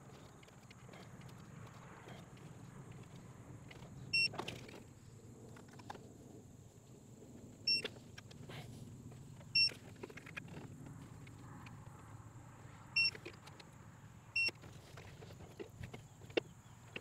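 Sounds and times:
torque wrench beeping: 9.5s - 9.8s.

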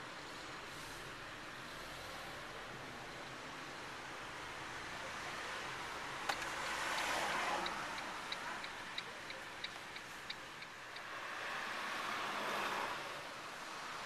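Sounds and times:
road noise inside car: 0.0s - 14.0s
turn signal ticking: 6.2s - 11.2s.

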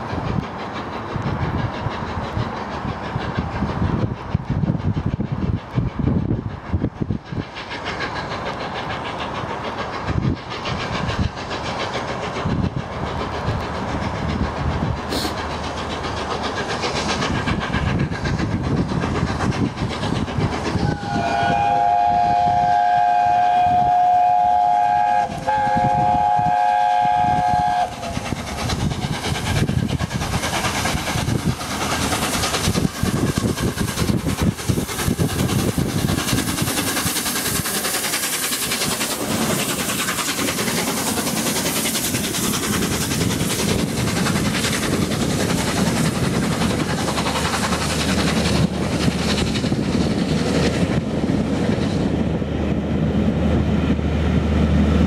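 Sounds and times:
steam locomotive exhaust: 0.0s - 55.0s
train wheel noise: 0.0s - 55.0s
steam chime whistle: 20.8s - 28.0s.

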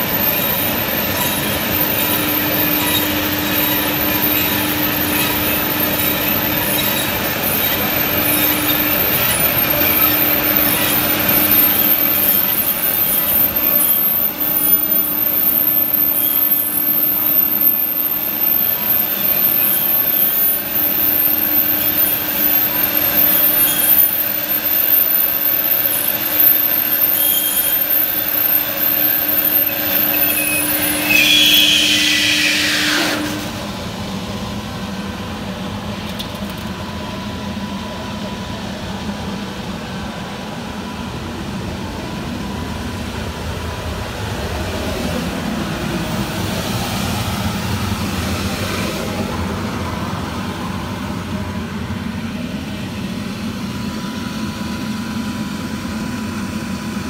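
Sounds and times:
slitting machine hum: 0.0s - 39.0s
motor whine: 0.0s - 57.0s.

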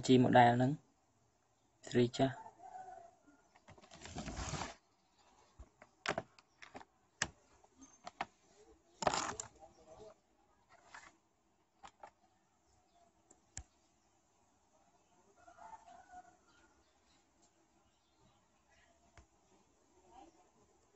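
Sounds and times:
rustling: 3.6s - 11.2s
handling clicks and knocks: 5.6s - 8.4s, 11.8s - 12.2s.

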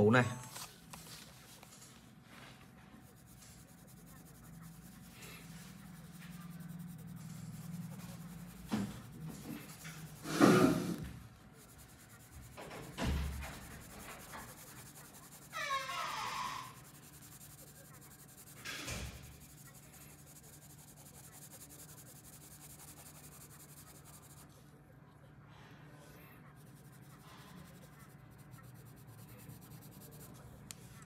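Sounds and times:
paper rustle: 0.5s - 4.1s
marker scratching on paper: 2.9s - 24.6s, 26.4s - 31.0s.

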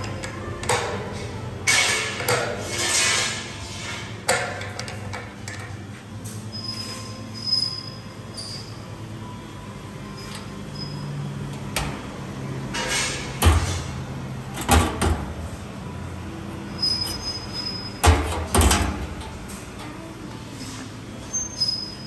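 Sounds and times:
metal rubbing squeak: 6.3s - 8.8s, 10.2s - 11.2s, 16.7s - 18.4s, 20.5s - 22.0s.

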